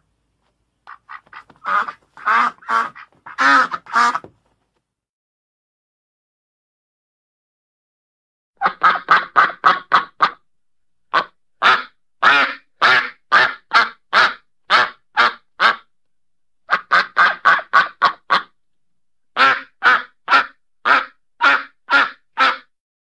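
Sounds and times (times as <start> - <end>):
duck quacking: 0.9 - 4.3, 8.6 - 10.4, 11.1 - 15.9, 16.7 - 18.5, 19.4 - 22.7.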